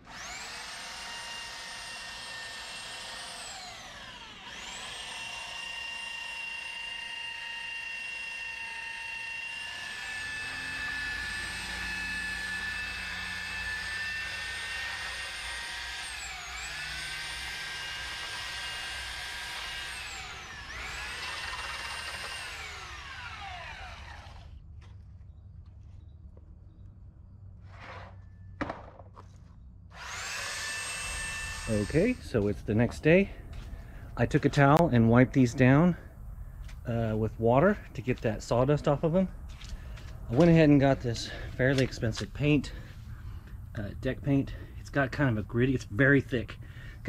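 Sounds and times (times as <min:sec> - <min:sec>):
electric sander motor whine: 0:00.0 - 0:25.0, 0:29.9 - 0:36.8.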